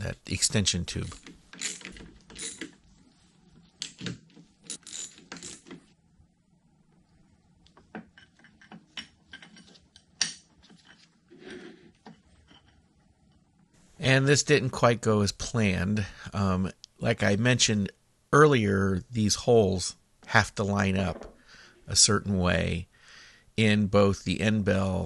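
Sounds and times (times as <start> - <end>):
metal clicks and clinks: 1.1 - 2.8.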